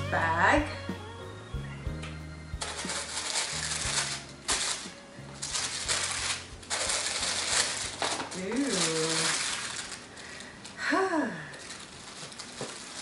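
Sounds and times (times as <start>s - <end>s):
quiet background music: 0.0s - 13.0s
tissue paper rustling: 2.6s - 10.8s, 11.5s - 13.0s.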